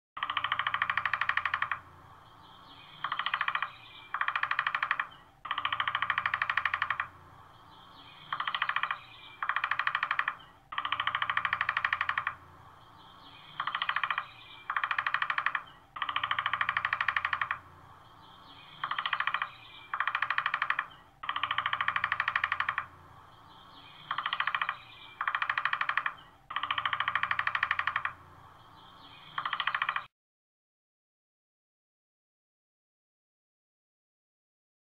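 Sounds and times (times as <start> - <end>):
woodpecker drumming: 0.2 - 30.1.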